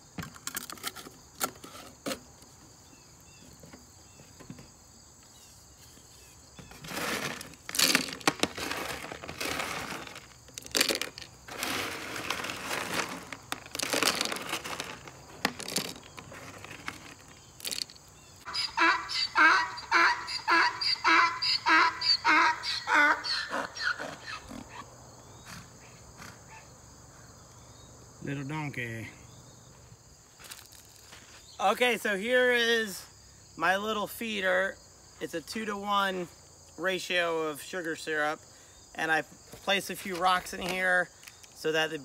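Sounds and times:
crickets trilling: 0:00.0 - 0:42.0
rustling crunching noises: 0:06.6 - 0:18.5, 0:30.3 - 0:31.6.

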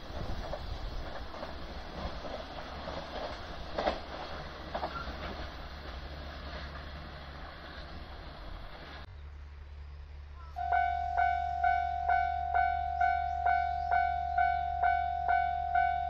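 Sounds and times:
wheel clacks over rail joints: 0:00.0 - 0:09.1
freight train wagons rumbling: 0:00.0 - 0:16.0.

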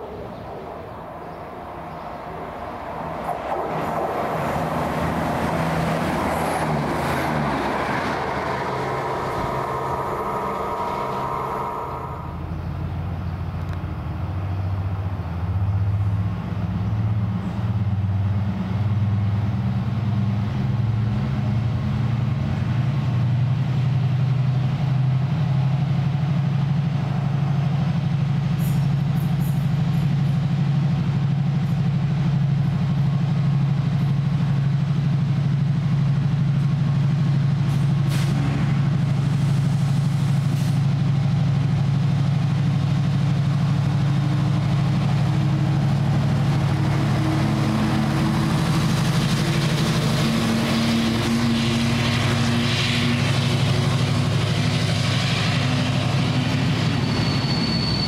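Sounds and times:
train wheels on rails: 0:01.7 - 0:13.1, 0:19.4 - 0:58.0
diesel engine idling: 0:05.1 - 0:13.6, 0:30.6 - 0:57.6
thin steady brake squeal: 0:56.6 - 0:58.0.

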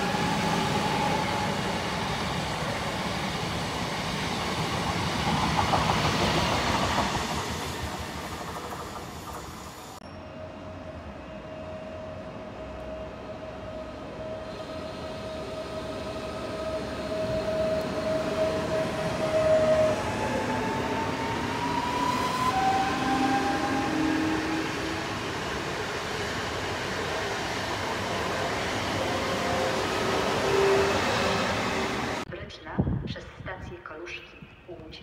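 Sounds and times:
train wheels rumbling on rails: 0:00.0 - 0:10.0
train electric whine: 0:00.0 - 0:32.2.

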